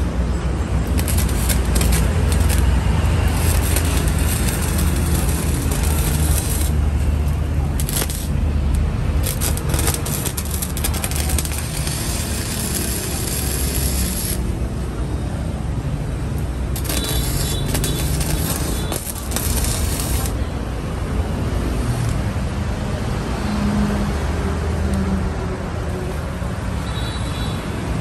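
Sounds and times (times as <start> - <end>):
welder arc crackling and sizzling: 0.8 - 14.8, 16.4 - 20.4.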